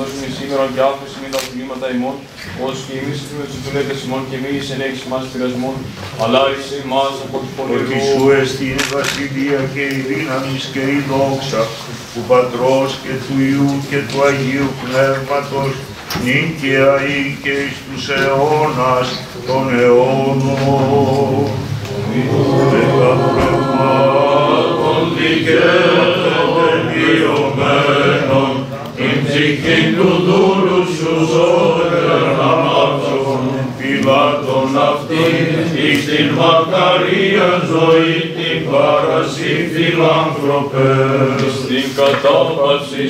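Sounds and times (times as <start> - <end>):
choir singing chant unaccompanied: 6.2 - 43.0.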